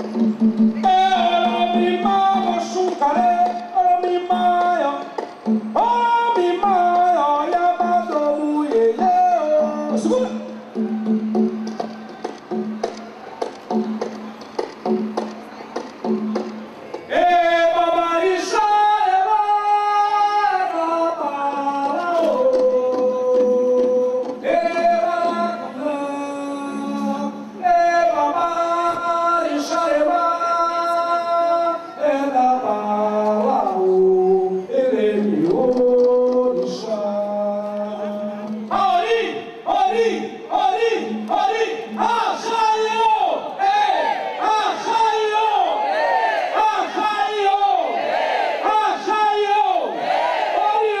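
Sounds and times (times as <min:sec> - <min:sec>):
man chanting: 0:00.8 - 0:05.0, 0:17.1 - 0:45.8.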